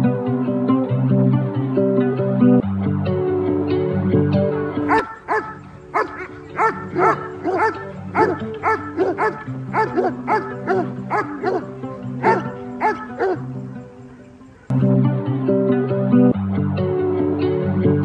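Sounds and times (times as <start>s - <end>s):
background music: 0.0s - 18.0s
dog barking: 4.9s - 13.6s.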